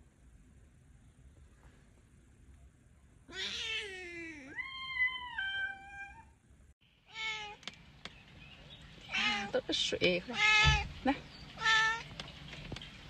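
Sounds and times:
cat meowing: 0:03.3 - 0:06.4, 0:07.1 - 0:07.6, 0:09.1 - 0:09.5, 0:10.3 - 0:10.9, 0:11.6 - 0:12.1.

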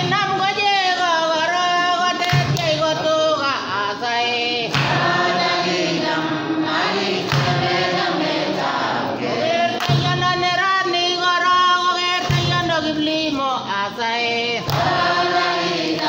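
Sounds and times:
choir singing with held notes: 0:03.9 - 0:11.0, 0:13.7 - 0:16.0.

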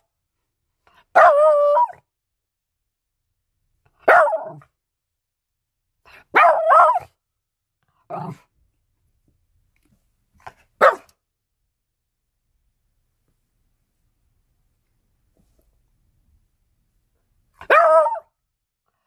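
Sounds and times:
small dog barking: 0:01.1 - 0:02.0, 0:04.0 - 0:04.7, 0:06.1 - 0:07.2, 0:10.8 - 0:11.2, 0:17.6 - 0:18.3.

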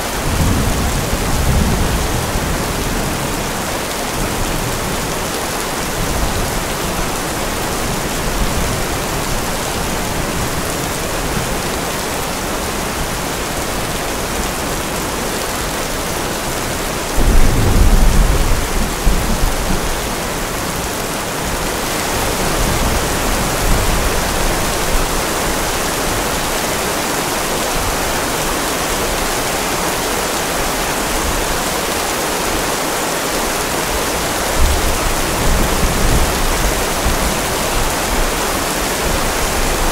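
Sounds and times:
steady rain: 0:00.0 - 0:39.9
thunder rumble: 0:17.1 - 0:21.6.

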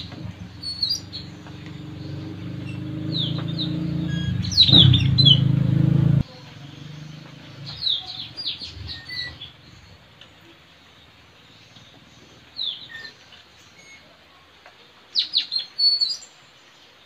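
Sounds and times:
parrots calling: 0:00.0 - 0:05.6
loud low hum: 0:00.0 - 0:10.1.

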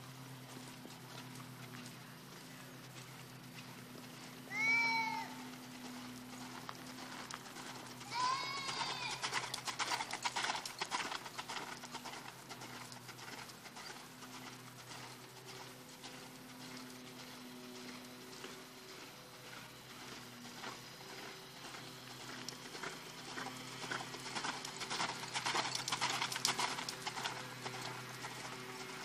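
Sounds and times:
animal call rising and falling: 0:04.5 - 0:05.5, 0:08.0 - 0:09.4.

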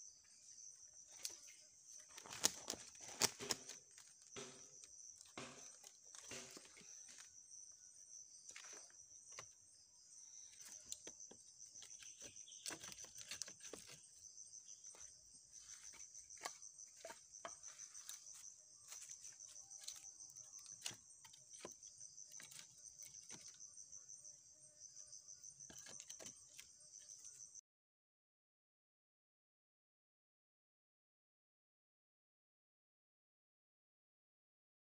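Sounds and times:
insects trilling: 0:00.0 - 0:27.6
firewood knocking and clattering: 0:02.2 - 0:07.4.

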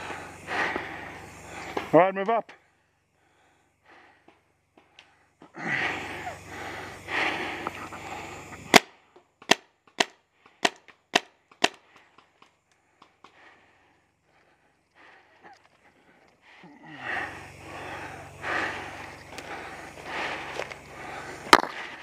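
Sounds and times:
paintball marker firing: 0:08.7 - 0:13.4, 0:21.5 - 0:22.0.

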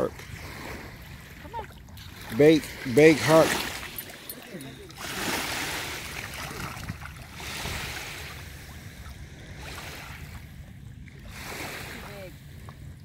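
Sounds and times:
small waves washing on sand: 0:00.0 - 0:12.9.

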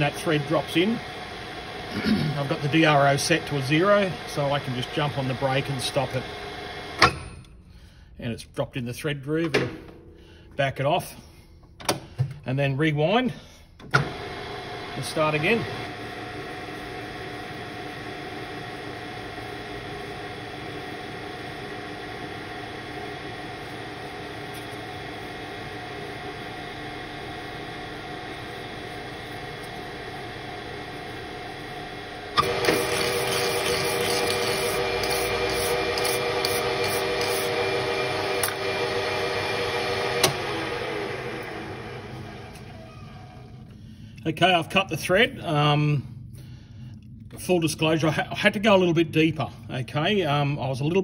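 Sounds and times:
lathe humming with gear whine: 0:00.0 - 0:07.4, 0:13.9 - 0:43.9.

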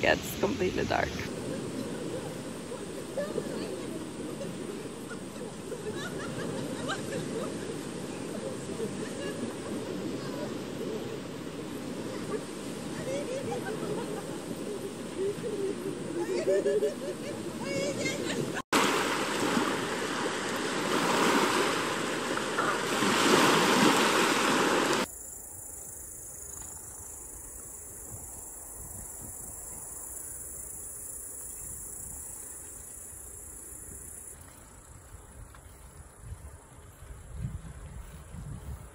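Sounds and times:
small waves washing on shore: 0:00.0 - 0:25.1
high insect trill: 0:25.0 - 0:35.3
low wind rumble: 0:34.8 - 0:38.9.

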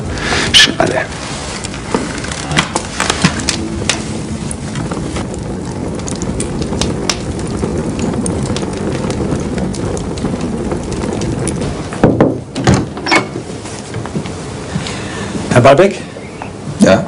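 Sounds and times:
fire crackles and pops: 0:00.0 - 0:17.0
rush of flames: 0:00.0 - 0:17.0
loud knock: 0:12.0 - 0:13.0.

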